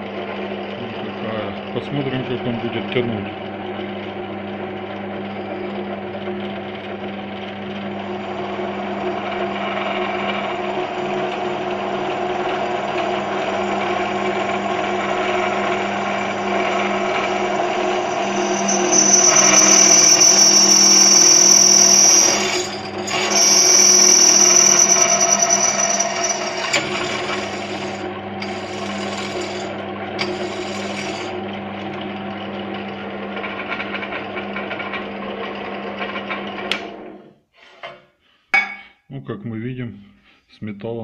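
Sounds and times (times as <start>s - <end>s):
drill press motor hum: 3.3s - 37.2s
drill bit squealing in metal: 16.5s - 31.4s.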